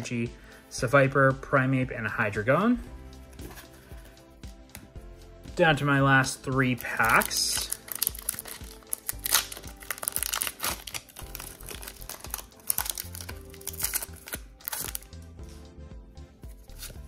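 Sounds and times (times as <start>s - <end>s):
soft background music: 0.0s - 17.0s
foil wrapper crinkling and tearing: 6.8s - 15.1s.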